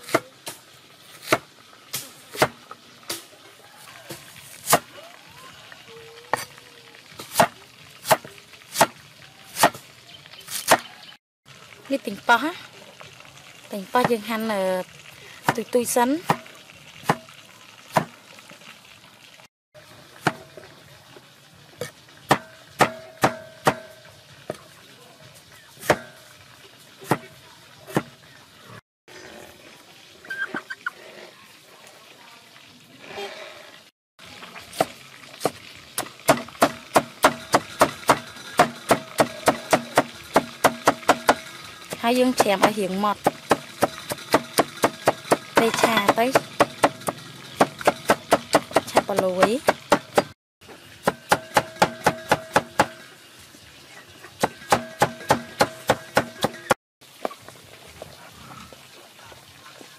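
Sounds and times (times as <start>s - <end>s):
cleaver chopping on wooden board: 51.1s - 53.0s, 54.4s - 56.7s.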